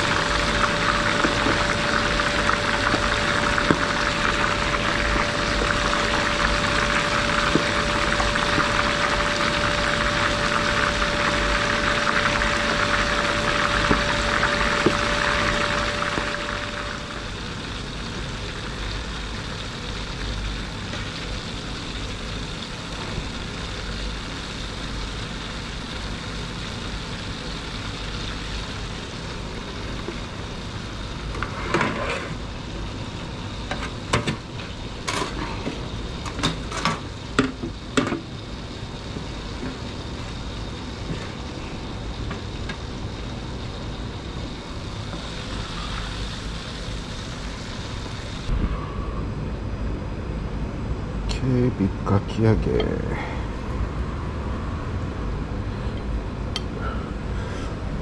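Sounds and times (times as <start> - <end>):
oil sizzling in a deep fryer: 0.0 - 58.0
low steady rumble: 37.2 - 58.0.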